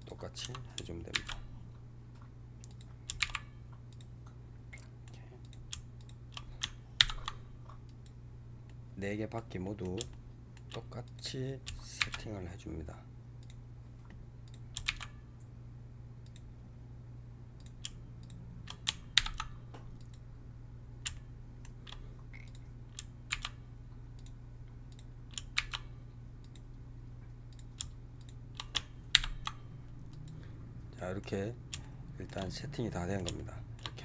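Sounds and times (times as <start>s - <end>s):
keyboard and mouse clicking: 0.0s - 1.4s, 2.6s - 4.1s, 4.7s - 8.2s, 14.4s - 15.2s, 17.6s - 20.2s, 21.0s - 23.6s, 24.2s - 26.6s, 27.5s - 30.4s
steady low hum: 0.0s - 34.0s.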